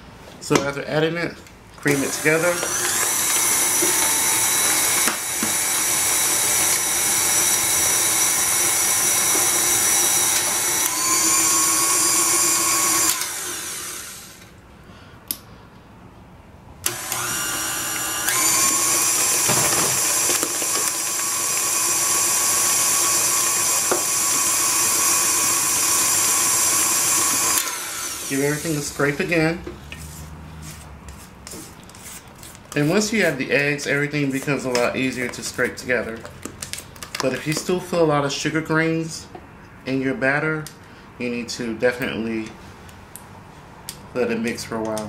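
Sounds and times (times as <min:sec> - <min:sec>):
stand mixer motor whining: 0:01.9 - 0:14.5, 0:16.9 - 0:29.2.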